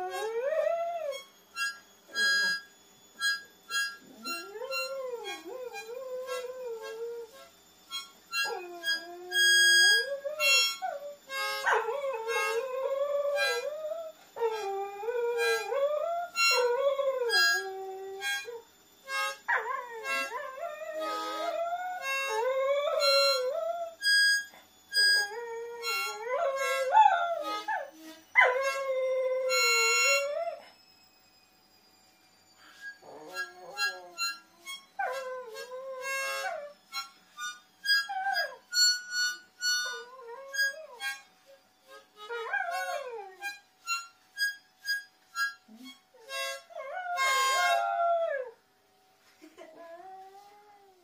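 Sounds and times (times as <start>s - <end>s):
dog howling: 8.4s - 18.6s, 19.5s - 24.1s, 25.1s - 30.7s, 33.0s - 36.8s, 42.2s - 43.5s, 45.8s - 48.6s.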